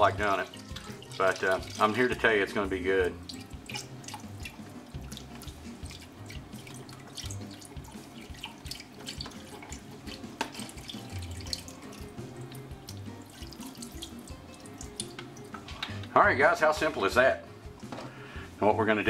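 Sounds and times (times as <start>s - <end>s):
broth pouring into a pot: 0.0s - 2.5s, 3.1s - 15.5s.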